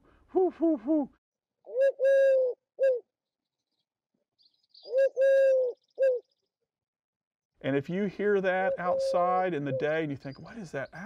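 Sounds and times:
dove cooing: 1.7 - 3.0, 4.9 - 6.2, 8.6 - 10.0.

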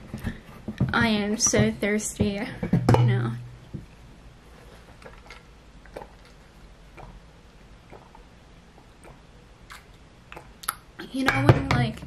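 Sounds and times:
person sipping and swallowing: 7.8 - 10.9.

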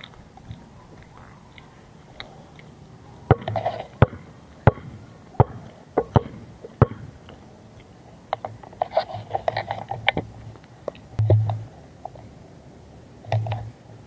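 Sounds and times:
basketball bouncing on concrete: 3.3 - 7.1, 11.2 - 11.6.

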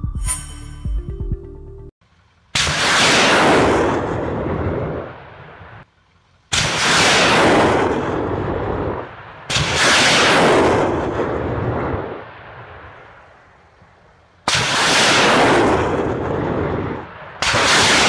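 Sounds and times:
rocket launch blast and roar: 2.6 - 5.8, 6.5 - 13.0, 14.5 - 18.0.

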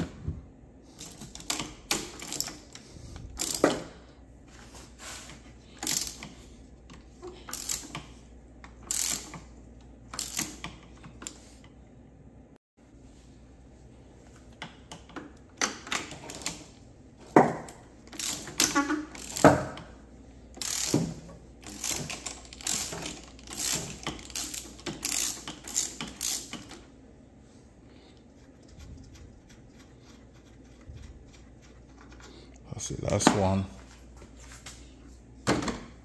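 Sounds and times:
hand ratchet clicking: 7.5 - 8.1, 8.8 - 9.4, 18.1 - 19.6, 20.6 - 26.8.

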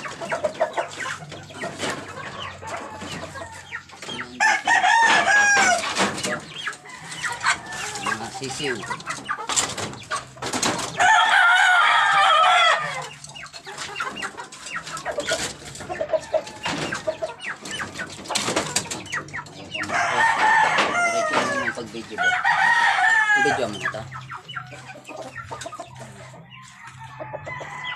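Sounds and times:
chicken clucks: 0.0 - 27.9
knocks and rustles from coops: 0.0 - 27.9
roosters crowing: 0.0 - 27.9.

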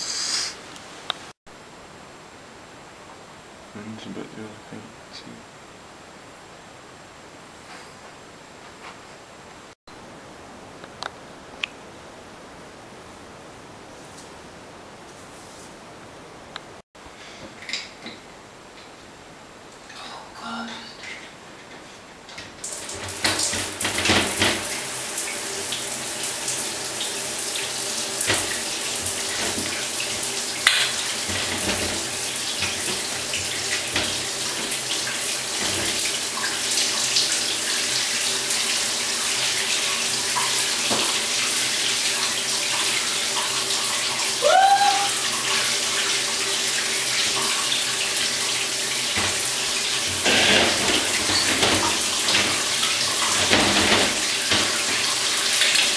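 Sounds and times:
shower water spraying: 0.0 - 0.6, 22.6 - 55.9.

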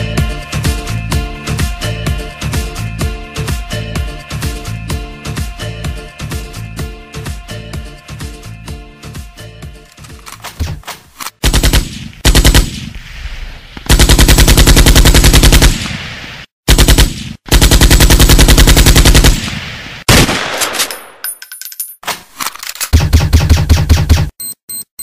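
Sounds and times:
machine-gun fire: 11.4 - 13.0, 13.9 - 21.0, 22.9 - 24.3.

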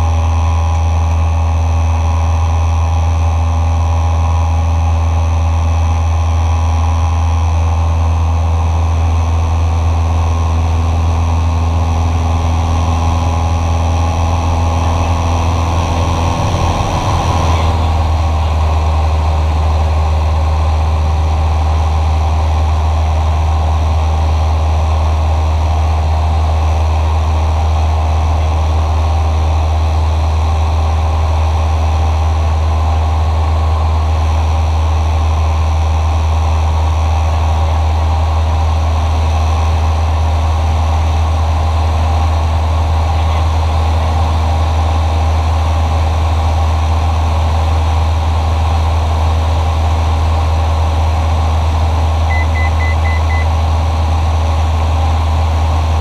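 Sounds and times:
airplane engine droning: 0.0 - 35.1, 37.0 - 56.0
quick high beeps: 52.3 - 53.5.

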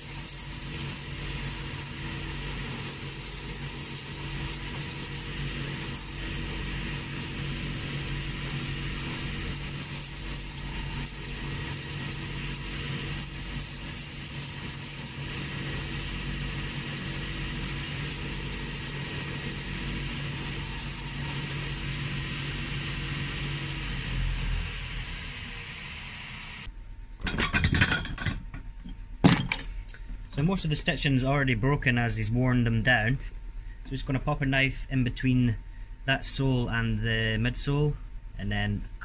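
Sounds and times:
abrasive wheel sanding leather: 0.0 - 25.5.

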